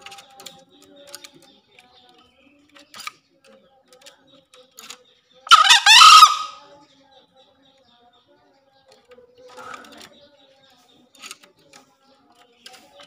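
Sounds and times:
junglefowl crowing: 5.5s - 6.6s.

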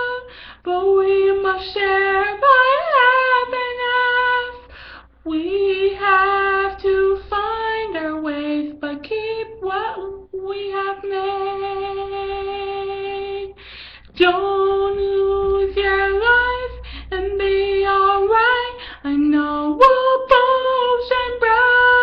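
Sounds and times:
woman singing unaccompanied: 0.0s - 22.0s
singer breathing: 0.3s - 0.7s, 4.6s - 5.2s, 13.5s - 14.2s, 16.8s - 17.1s, 18.8s - 19.1s.

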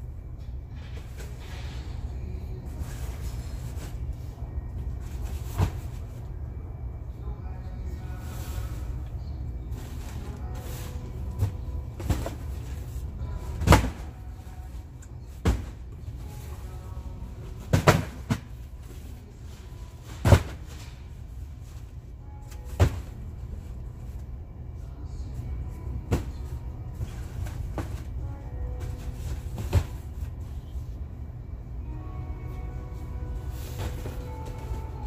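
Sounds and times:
steady low hum: 0.0s - 35.0s
cardboard boxes knocking and thumping: 11.4s - 14.1s, 15.4s - 15.9s, 17.6s - 18.6s, 20.1s - 20.8s, 22.7s - 23.2s, 28.8s - 30.3s.

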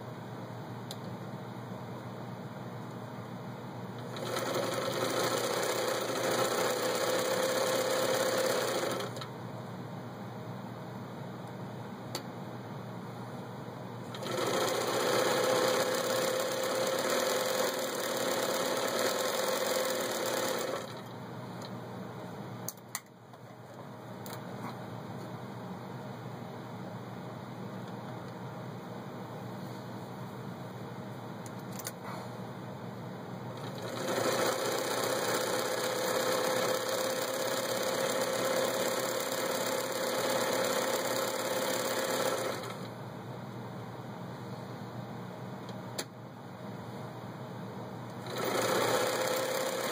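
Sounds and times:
sewing machine running: 4.0s - 9.2s, 14.1s - 21.1s, 33.6s - 42.9s, 48.2s - 49.9s.

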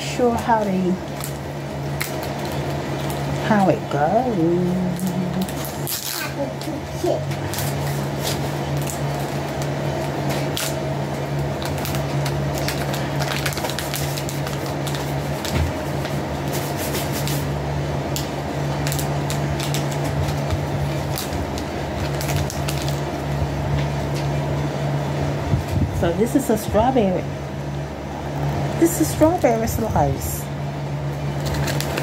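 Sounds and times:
steady low hum: 0.0s - 32.0s
small items clicking and rustling: 31.4s - 32.0s.

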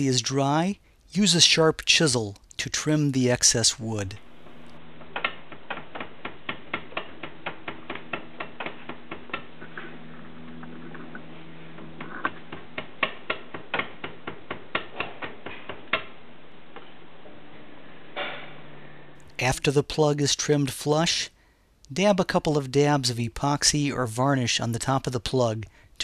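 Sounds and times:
chisel clicking on wood: 5.2s - 16.2s.

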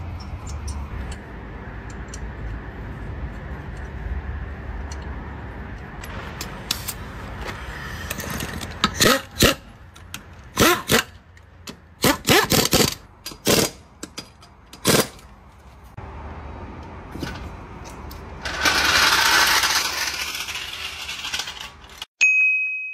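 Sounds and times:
pneumatic impact wrench hammering: 8.0s - 9.7s, 10.5s - 15.2s.

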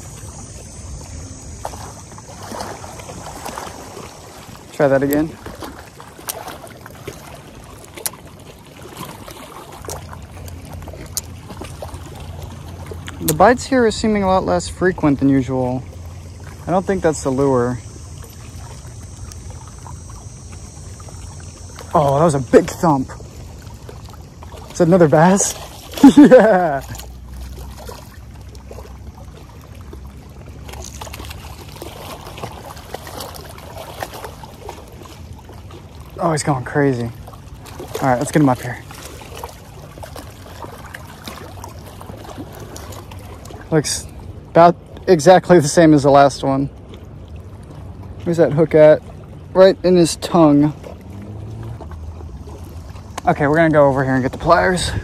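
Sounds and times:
waves lapping against rocks: 0.0s - 55.0s.

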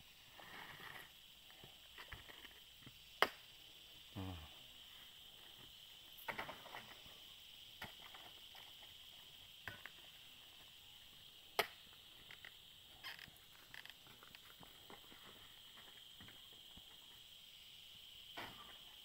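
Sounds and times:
high-pitched background hum: 3.4s - 7.6s.

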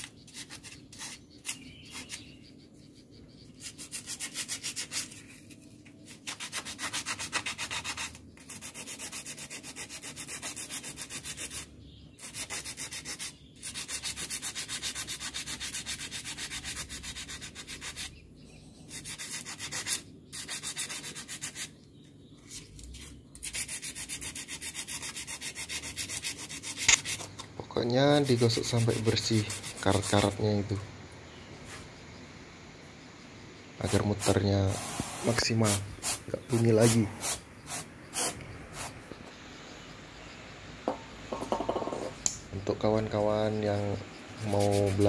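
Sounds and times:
sandpaper scraping metal: 0.0s - 2.3s, 3.5s - 18.2s, 18.9s - 21.7s, 22.4s - 27.3s, 28.1s - 30.5s, 33.8s - 39.0s, 43.1s - 45.0s.

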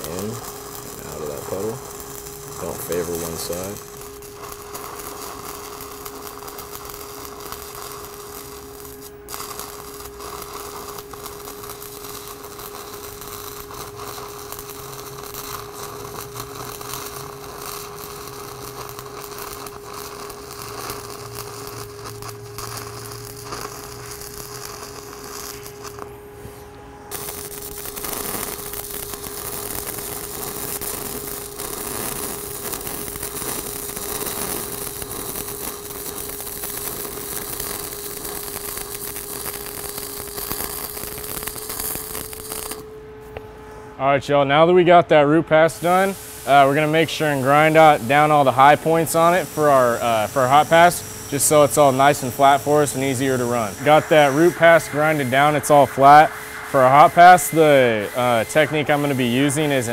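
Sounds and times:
welding arc crackling and hissing: 0.0s - 43.4s, 44.2s - 59.9s
steady hum: 0.0s - 59.9s.

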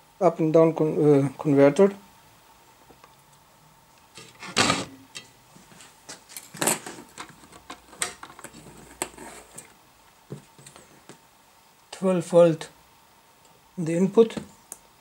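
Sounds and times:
hands handling circuit board: 6.1s - 11.2s.

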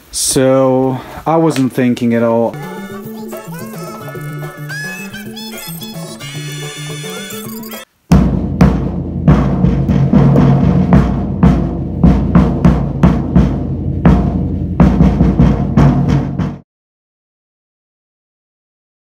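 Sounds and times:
bass drum booming: 8.1s - 16.6s.

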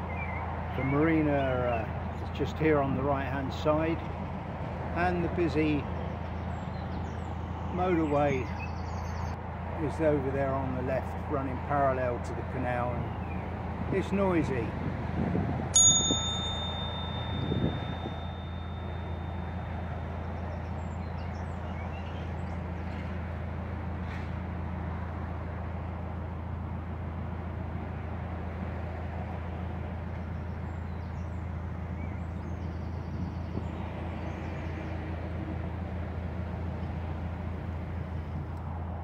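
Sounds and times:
diesel engine humming: 0.0s - 39.0s
motorway traffic noise: 0.0s - 39.0s
bell-like chime: 15.8s - 20.4s.

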